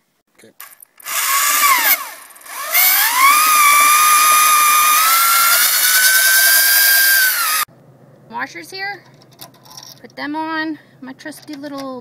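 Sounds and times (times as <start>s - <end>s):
electric drill drilling into wood: 1.0s - 7.7s.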